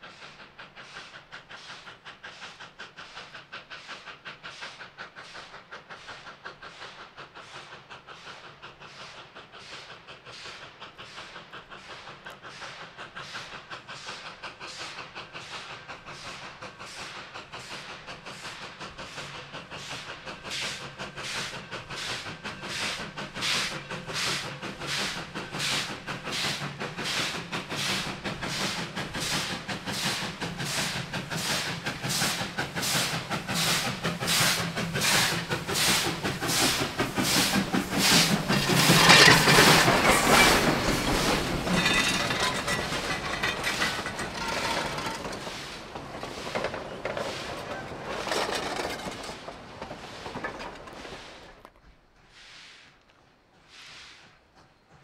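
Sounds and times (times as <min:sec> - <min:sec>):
train wheels rattling on rail: 0:00.0 - 0:52.0, 0:53.3 - 0:55.0
steam locomotive chuffing: 0:00.0 - 0:52.4, 0:53.2 - 0:55.0.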